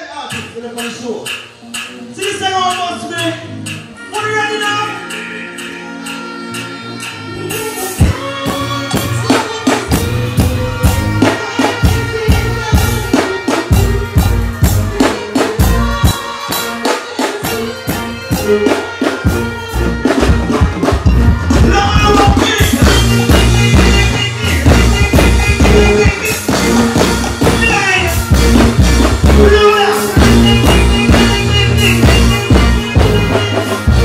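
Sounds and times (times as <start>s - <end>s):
heavy bass and drum beat: 7.0s - 34.0s
performer's voice on microphone: 21.5s - 26.5s.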